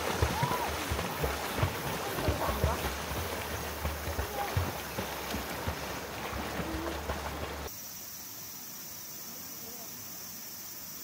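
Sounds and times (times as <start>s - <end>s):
stream water flowing: 0.0s - 7.7s
chorus of insects: 0.0s - 11.0s.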